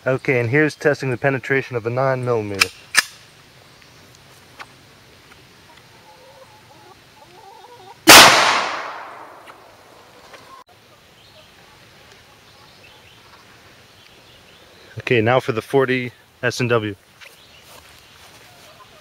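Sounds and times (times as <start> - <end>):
pistol shot echoing: 8.1 - 9.6.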